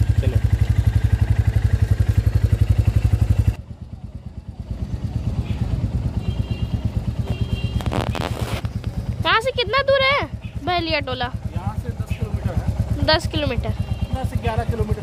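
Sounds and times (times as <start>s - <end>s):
motorcycle engine idling: 0.0s - 15.0s
rustling: 7.7s - 9.0s.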